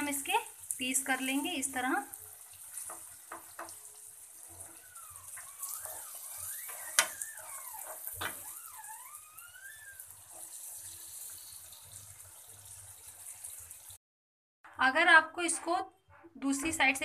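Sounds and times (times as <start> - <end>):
food sizzling in frying pan: 0.0 - 14.0
spatula scraping pan: 2.6 - 11.5.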